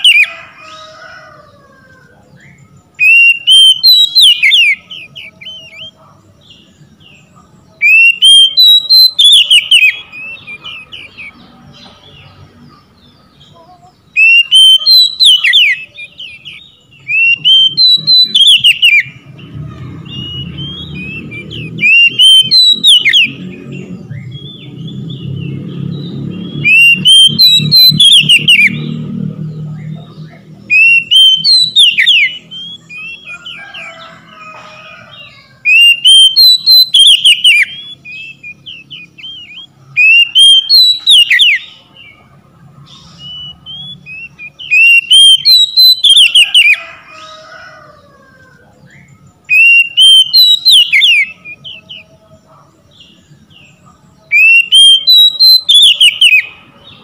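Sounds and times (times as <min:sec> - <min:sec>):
bird singing whistled phrases: 0:02.5 - 0:06.0, 0:07.8 - 0:11.3, 0:14.1 - 0:19.2, 0:20.0 - 0:23.4, 0:26.5 - 0:28.9, 0:30.7 - 0:33.5, 0:35.6 - 0:41.7, 0:43.0 - 0:46.8, 0:49.5 - 0:52.0, 0:54.3 - 0:56.5.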